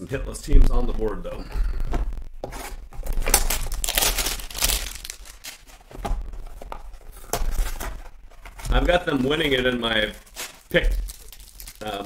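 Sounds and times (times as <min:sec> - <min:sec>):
packaging crinkling: 0:00.4 - 0:12.0
cardboard box tearing: 0:02.4 - 0:12.0.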